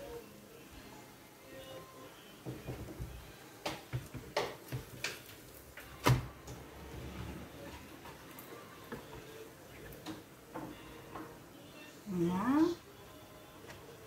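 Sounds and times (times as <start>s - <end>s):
hands tapping dough on board: 2.4s - 5.2s.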